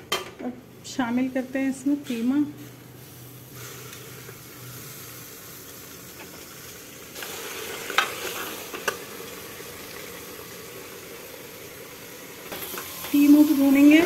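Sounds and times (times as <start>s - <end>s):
meat sizzling in hot oil: 3.0s - 14.0s.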